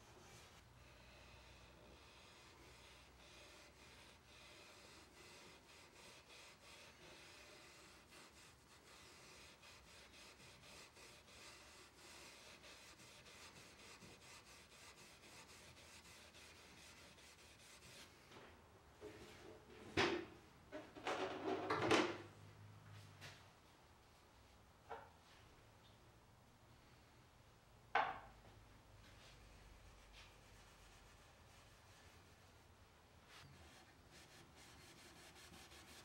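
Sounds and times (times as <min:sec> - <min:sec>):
steel wool rubbing wood: 0:00.0 - 0:18.1, 0:29.3 - 0:32.7, 0:33.3 - 0:36.0.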